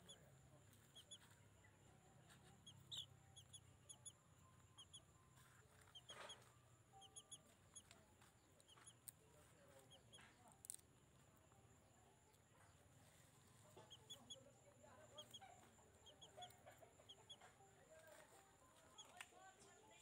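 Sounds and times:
small high chirps: 0:00.8 - 0:01.4, 0:02.3 - 0:09.2.

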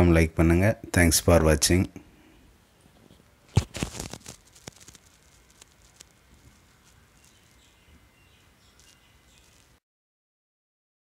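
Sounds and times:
low background noise: 0:00.0 - 0:09.8
fabric rustle: 0:03.5 - 0:07.7.

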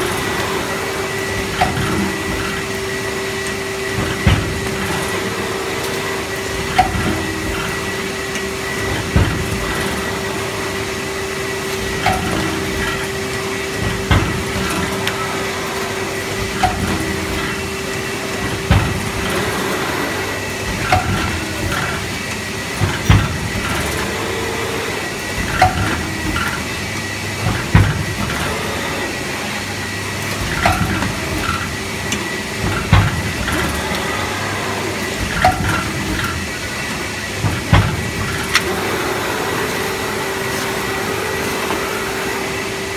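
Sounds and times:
machine knocking: 0:00.0 - 0:26.8, 0:27.4 - 0:42.6
box forming machine humming: 0:00.0 - 0:42.9.

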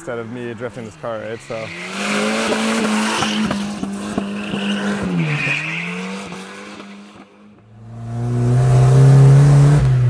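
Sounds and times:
tyres squealing on asphalt: 0:00.1 - 0:06.7
turbocharged car engine revving: 0:00.2 - 0:10.0.

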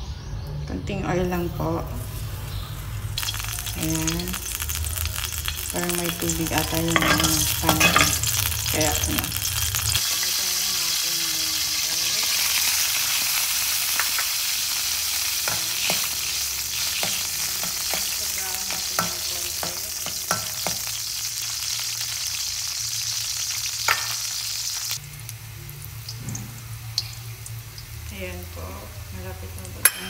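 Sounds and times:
garlic sizzling in oil: 0:01.4 - 0:30.0
metal spoon clinking on wok: 0:07.0 - 0:08.3.

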